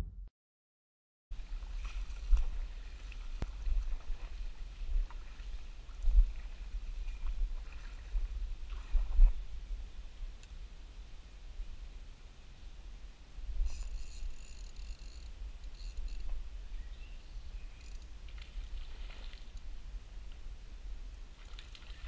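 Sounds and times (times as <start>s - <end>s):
faint clicks: 17.7s - 19.7s.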